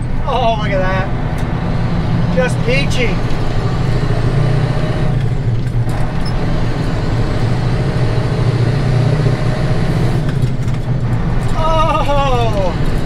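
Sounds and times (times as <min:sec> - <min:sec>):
truck engine drone: 0:00.0 - 0:13.0.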